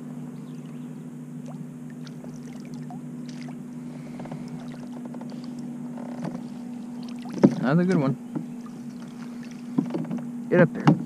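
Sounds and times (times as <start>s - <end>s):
steady low hum: 0.0s - 11.0s
fish splashing beside kayak: 1.4s - 10.1s
landing net dipping into water: 1.4s - 10.2s.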